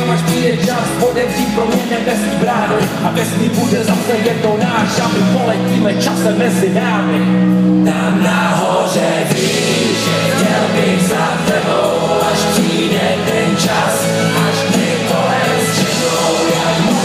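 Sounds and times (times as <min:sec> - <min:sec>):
live rap-rock band music: 0:00.0 - 0:17.0
voices singing together: 0:07.5 - 0:17.0.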